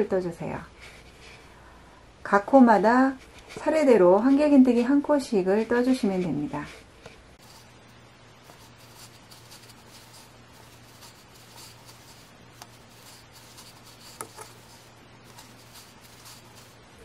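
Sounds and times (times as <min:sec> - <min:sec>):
crochet hook rustling through yarn: 0:05.6 - 0:17.0.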